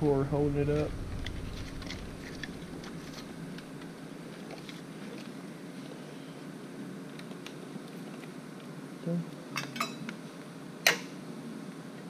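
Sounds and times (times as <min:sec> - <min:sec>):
steady low hum: 0:00.0 - 0:05.8.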